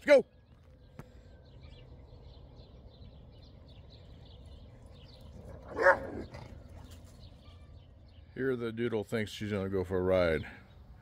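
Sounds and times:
faint bird chirping: 0:00.1 - 0:11.0
dog barking: 0:05.6 - 0:06.4.

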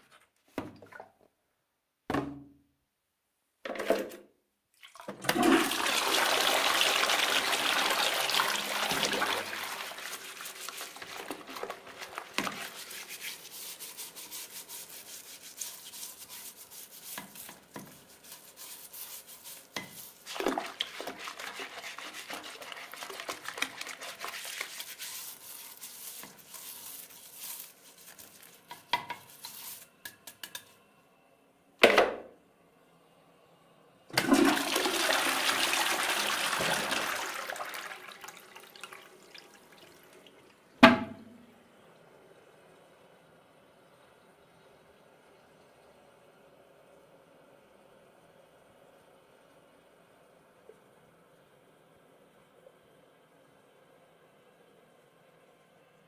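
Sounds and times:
toilet flushing: 0:04.8 - 0:29.6, 0:34.1 - 0:41.5
knocks: 0:40.8 - 0:41.4.

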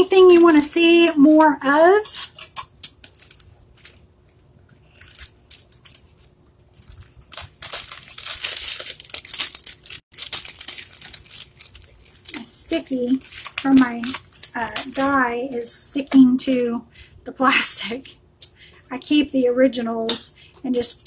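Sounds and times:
plastic packaging crinkling: 0:01.9 - 0:15.2.

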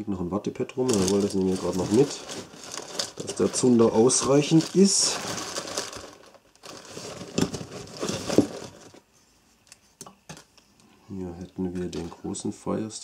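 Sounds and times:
plastic bag crinkling: 0:00.8 - 0:09.0.

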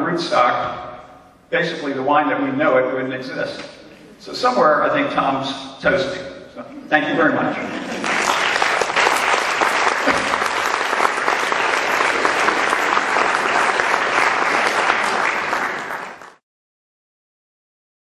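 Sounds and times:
audience applause: 0:07.8 - 0:16.4.

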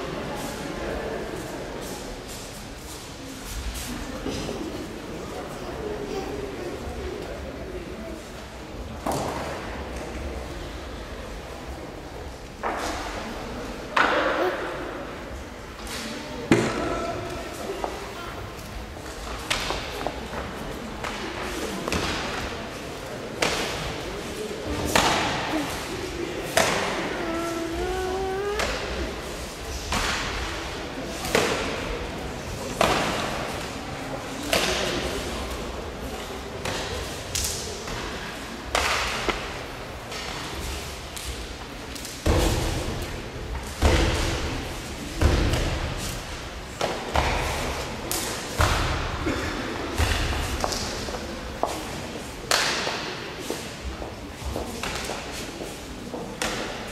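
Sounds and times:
person holding long call: 0:25.4 - 0:29.0.

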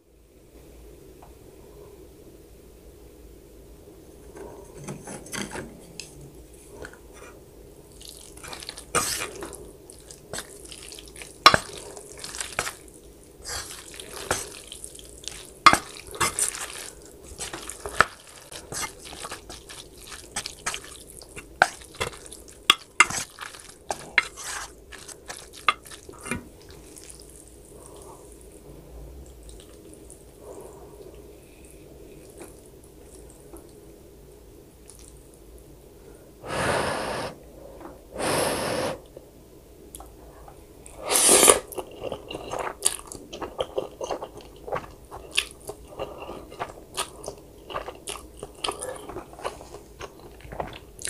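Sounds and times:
wet sticky eating sounds: 0:07.9 - 0:28.6, 0:29.2 - 0:33.8, 0:34.8 - 0:35.3, 0:41.0 - 0:51.0.

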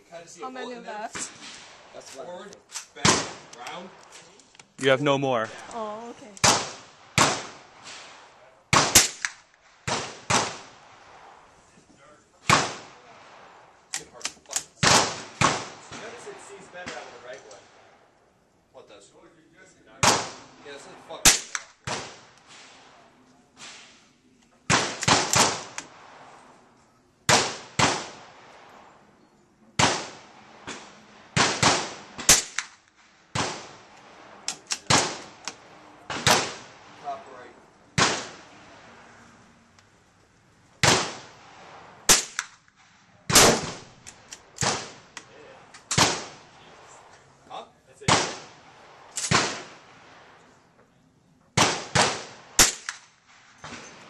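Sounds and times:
gunshots: 0:02.7 - 0:04.0, 0:06.4 - 0:11.4, 0:12.4 - 0:17.9, 0:19.9 - 0:24.0, 0:24.7 - 0:26.4, 0:27.3 - 0:28.7, 0:29.8 - 0:39.2, 0:40.8 - 0:42.6, 0:43.2 - 0:47.0, 0:48.0 - 0:50.4, 0:51.6 - 0:54.0.

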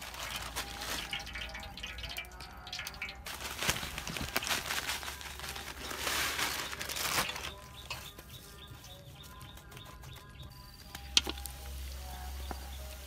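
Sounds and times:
breadcrumbs pouring hiss: 0:00.0 - 0:02.0.

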